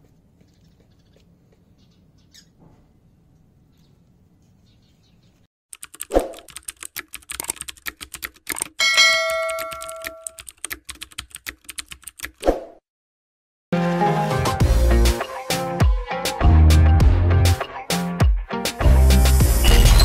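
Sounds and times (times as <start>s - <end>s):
typewriter clicks: 5.7s - 8.8s, 9.5s - 12.4s
notification bell ding: 8.8s - 10.3s.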